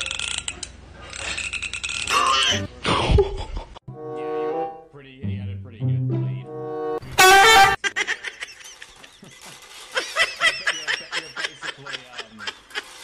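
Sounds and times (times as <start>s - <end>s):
person snickering and giggling: 2.8s - 3.8s, 7.8s - 13.0s.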